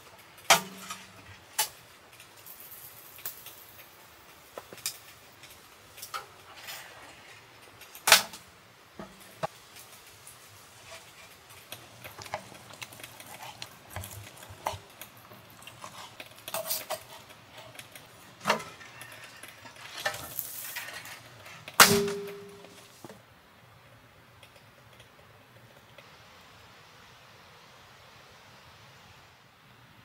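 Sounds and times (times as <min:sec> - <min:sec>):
metal tongs clacking on grill: 0:00.4 - 0:01.8.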